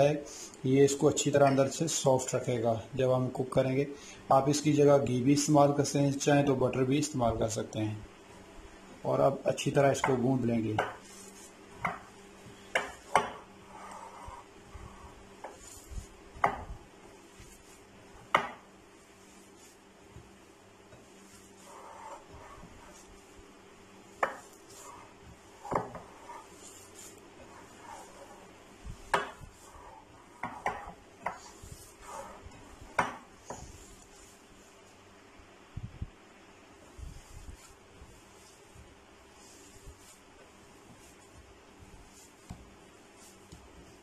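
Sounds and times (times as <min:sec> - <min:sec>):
rustle of kneaded mince: 0:09.1 - 0:35.1, 0:36.8 - 0:44.0.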